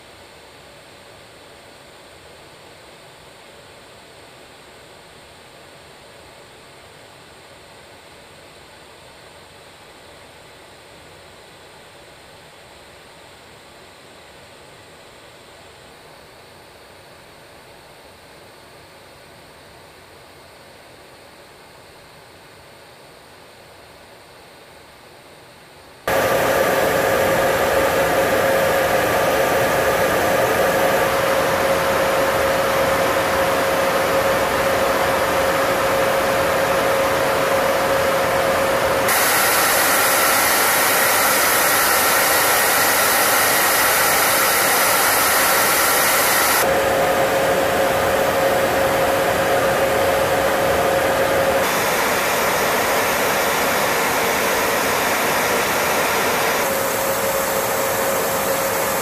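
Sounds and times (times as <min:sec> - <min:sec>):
jet engines and airflow rushing: 0:26.1 - 0:59.0.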